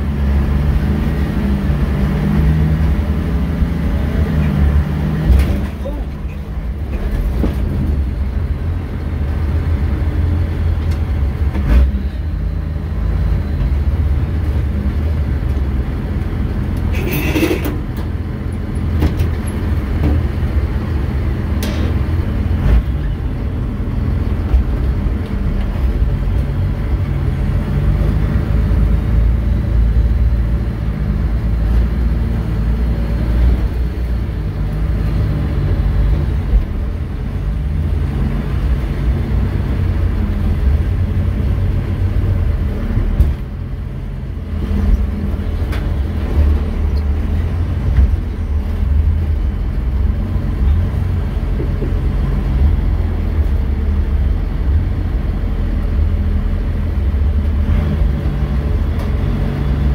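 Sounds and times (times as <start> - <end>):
truck engine running: 0.0 - 59.9.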